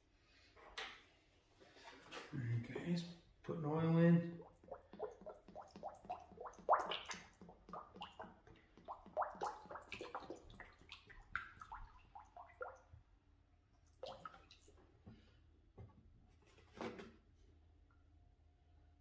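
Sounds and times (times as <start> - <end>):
oil glugging from a plastic jug: 4.4 - 12.9.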